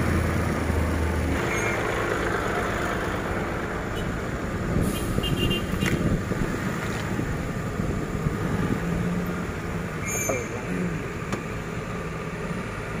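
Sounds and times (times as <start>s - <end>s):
truck diesel engine running: 0.0s - 5.4s
road noise: 0.0s - 13.0s.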